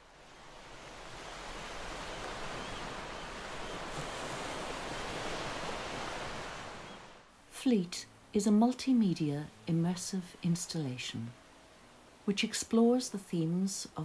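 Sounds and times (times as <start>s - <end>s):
surf washing: 0.0s - 7.3s.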